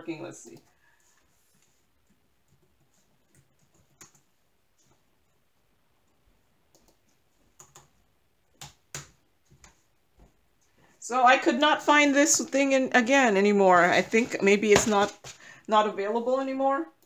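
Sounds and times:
keyboard and mouse clicks: 0:02.0 - 0:05.0, 0:06.0 - 0:09.8.

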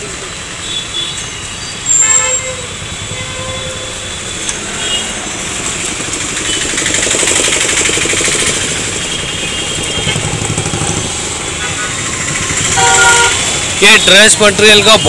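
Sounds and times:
street traffic: 0:00.0 - 0:15.0
small engine puttering: 0:05.7 - 0:13.8.

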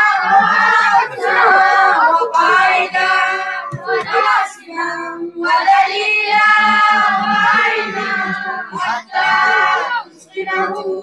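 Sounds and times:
child chanting into a microphone: 0:00.0 - 0:11.0.

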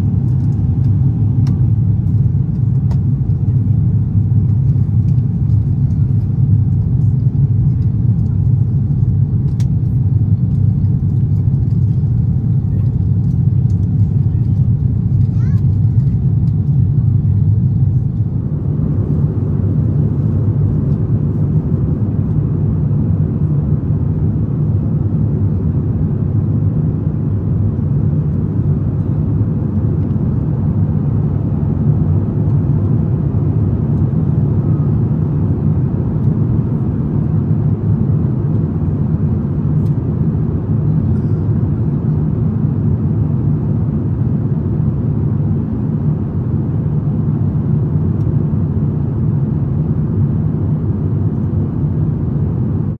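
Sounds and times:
jet engine drone in cabin: 0:00.0 - 0:52.9.

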